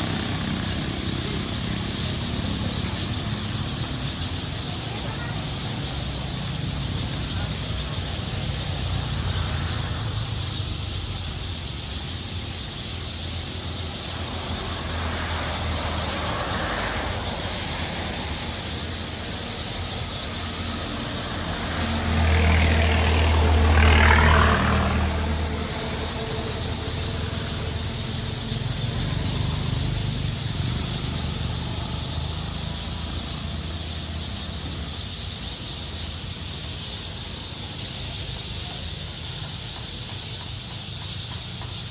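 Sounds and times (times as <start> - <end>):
traffic rumble: 0.0 - 41.9
vehicle passing: 13.2 - 41.9.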